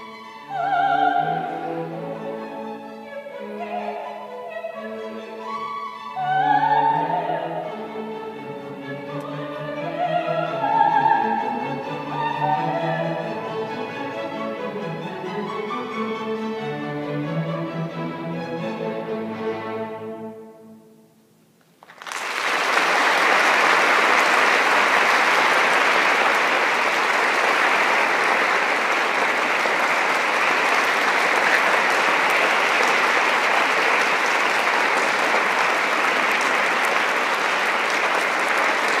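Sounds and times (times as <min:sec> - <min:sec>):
audience applause: 0:21.8 - 0:39.0.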